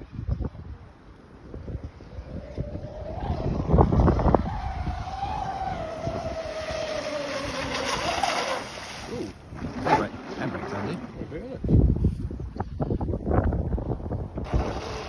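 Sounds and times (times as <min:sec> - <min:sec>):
wind buffeting microphone: 0:00.0 - 0:15.0
model boat motor whining: 0:02.2 - 0:11.3, 0:14.4 - 0:15.0.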